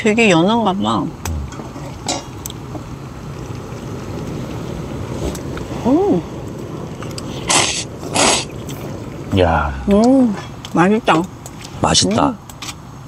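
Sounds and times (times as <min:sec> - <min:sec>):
rushing background noise: 0:00.0 - 0:11.8
person humming: 0:01.2 - 0:01.6
person slurping soup: 0:07.2 - 0:08.8.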